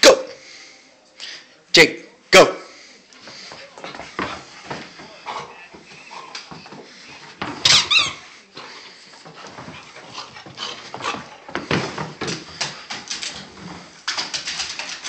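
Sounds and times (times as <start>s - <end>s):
dog scuffing on floor: 3.2s - 15.0s
high-pitched squeaks: 7.6s - 8.3s.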